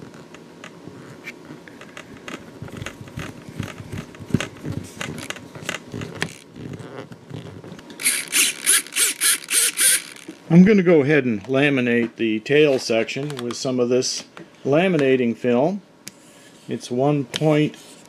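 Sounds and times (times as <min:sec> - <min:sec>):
screwdriver clicking and scraping: 0:08.0 - 0:10.4.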